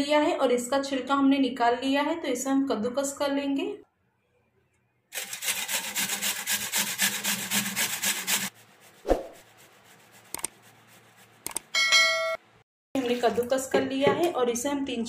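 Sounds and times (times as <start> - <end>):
potato rasping on a metal grater: 5.2 - 11.4.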